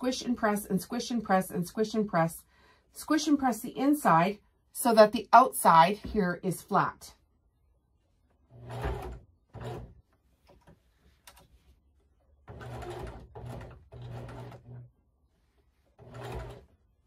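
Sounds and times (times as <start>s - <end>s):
sewing machine stitching: 8.5s - 10.0s, 12.4s - 14.9s, 15.9s - 16.8s.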